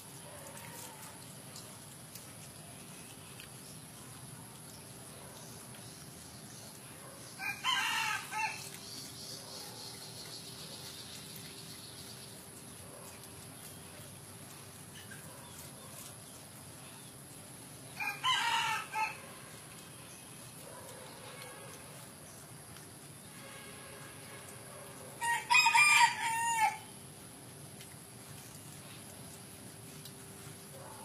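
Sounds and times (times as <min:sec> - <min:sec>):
rooster crowing: 0:07.4 - 0:08.6, 0:18.0 - 0:19.3, 0:25.2 - 0:26.9.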